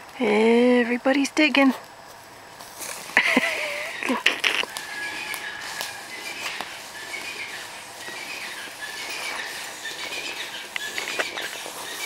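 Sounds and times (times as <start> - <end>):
dog paws digging in dirt: 1.6 - 12.0
bird chirping: 3.2 - 12.0.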